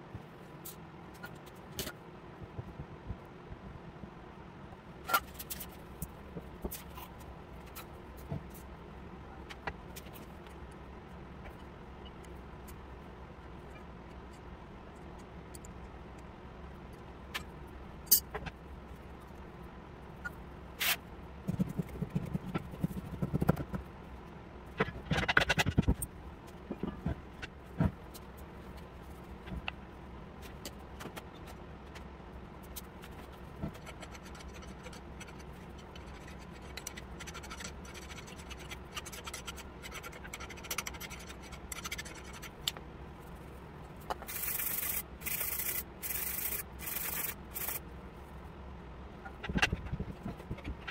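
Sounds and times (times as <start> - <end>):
fast scratchy scraping: 44.3 - 47.8.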